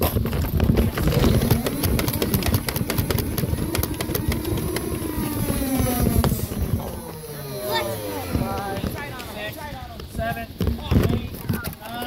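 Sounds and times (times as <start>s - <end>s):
sharp irregular clicks and knocks: 0.0s - 7.0s
microphone handling noise: 0.0s - 7.1s, 8.2s - 12.0s
wind buffeting microphone: 0.0s - 12.0s.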